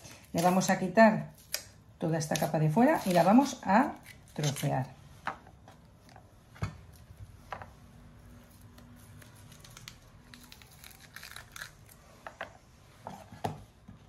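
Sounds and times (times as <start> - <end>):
spring onion peeling crinkling: 0.0 - 4.9, 8.3 - 12.2.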